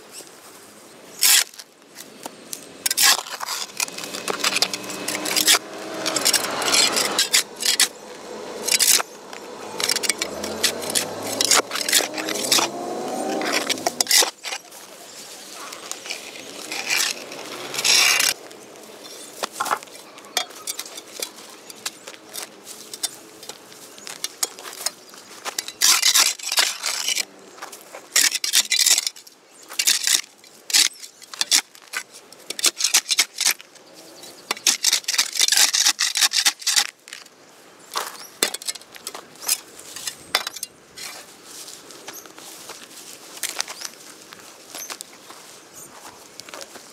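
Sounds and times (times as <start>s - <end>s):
grass clumps rustling: 0.0s - 46.9s
spade chopping and scraping soil: 2.8s - 14.8s, 19.4s - 27.3s, 34.4s - 37.0s.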